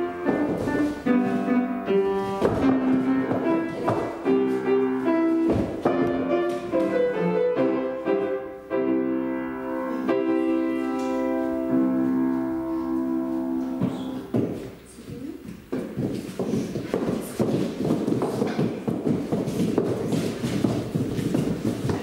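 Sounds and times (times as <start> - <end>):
piano playing slow chords: 0.0 - 14.4.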